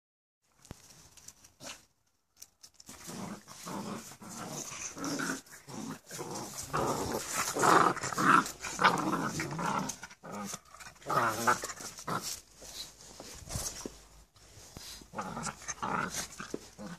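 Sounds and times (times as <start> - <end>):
dogs growling: 3.0 - 12.4, 15.1 - 16.9.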